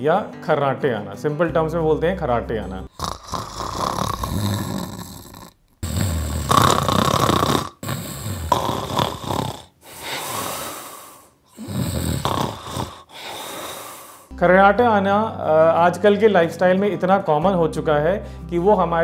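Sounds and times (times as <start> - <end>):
man snoring heavily: 2.9 - 14.3.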